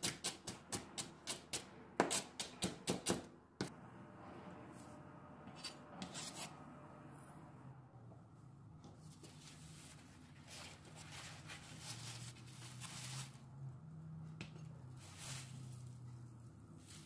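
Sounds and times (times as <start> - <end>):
paper towel crinkling: 9.2 - 13.5.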